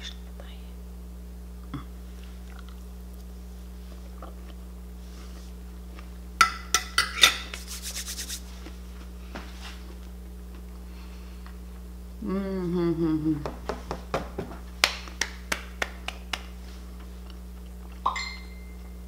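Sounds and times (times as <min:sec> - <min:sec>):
low hum: 0:10.0 - 0:13.6.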